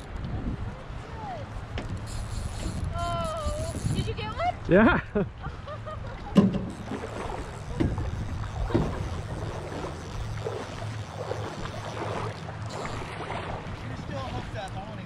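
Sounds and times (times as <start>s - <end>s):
river water splashing: 0.0s - 15.0s
wind buffeting microphone: 0.0s - 15.0s.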